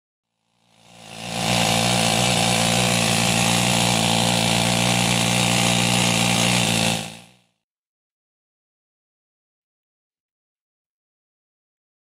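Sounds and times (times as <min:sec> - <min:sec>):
power tool running: 0:00.4 - 0:07.5.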